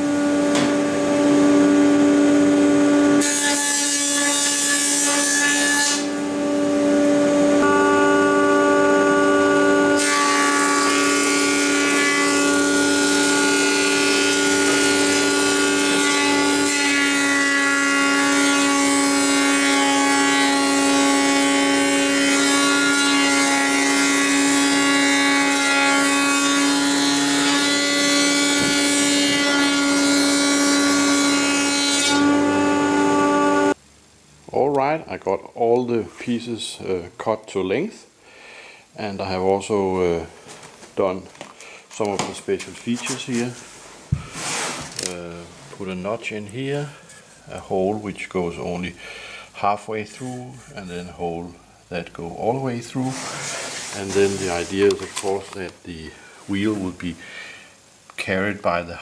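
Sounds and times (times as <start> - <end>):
planer whining: 0.0 - 33.8.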